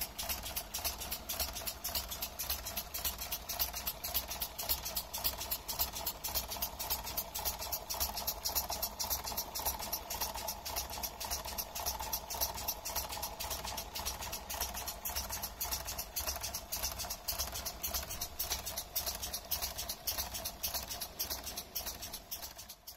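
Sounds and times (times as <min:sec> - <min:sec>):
air cylinders puffing rhythmically: 0:00.0 - 0:22.9.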